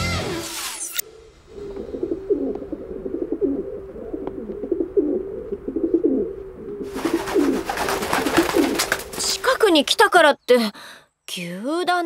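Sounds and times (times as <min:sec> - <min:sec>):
doves cooing: 0:01.1 - 0:10.0.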